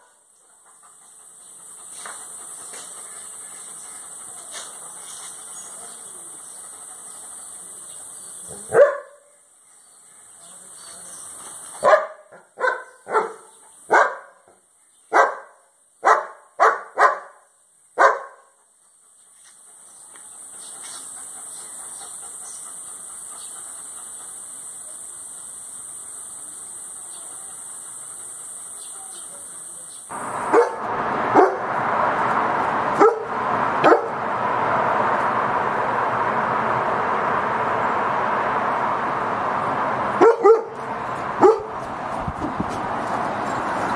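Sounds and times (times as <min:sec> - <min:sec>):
dogs barking: 0:08.5 - 0:09.2, 0:11.8 - 0:14.4, 0:15.1 - 0:17.4, 0:18.0 - 0:18.5, 0:30.1 - 0:31.8, 0:32.9 - 0:34.2, 0:40.1 - 0:41.8
background hiss: 0:14.8 - 0:43.9.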